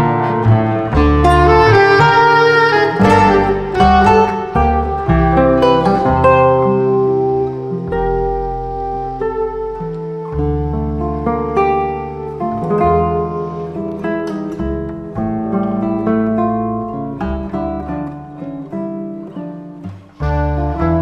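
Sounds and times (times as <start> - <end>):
classical guitar playing: 0.0 - 21.0.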